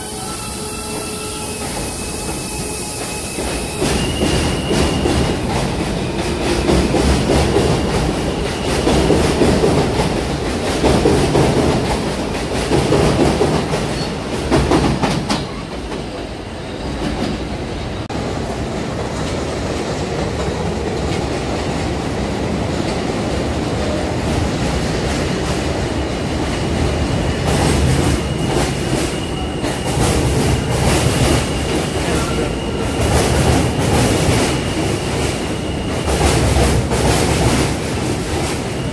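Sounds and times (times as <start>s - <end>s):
heavy train rumble: 0.0s - 38.9s
train wheels clacking over joints: 0.9s - 16.3s.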